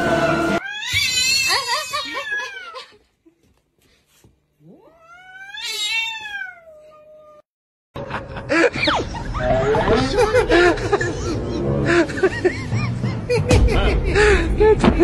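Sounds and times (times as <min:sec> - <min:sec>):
cat yowling: 0:00.6 - 0:02.8, 0:04.7 - 0:07.4.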